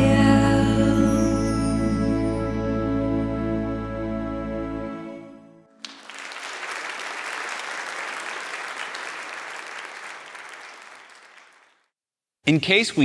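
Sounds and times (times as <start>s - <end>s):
audience applause: 5.8s - 11.9s.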